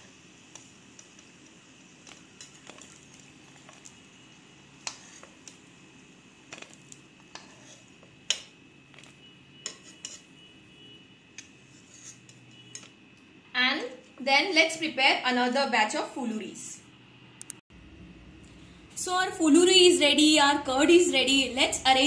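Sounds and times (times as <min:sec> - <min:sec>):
metal spatula scraping wok: 0:02.0 - 0:04.0, 0:04.7 - 0:05.6, 0:06.5 - 0:10.5, 0:11.4 - 0:12.9.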